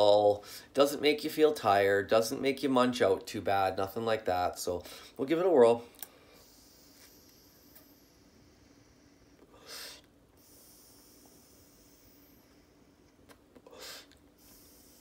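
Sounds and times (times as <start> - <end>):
person inhaling from vape: 6.1 - 15.0
short sharp breath: 6.1 - 15.0.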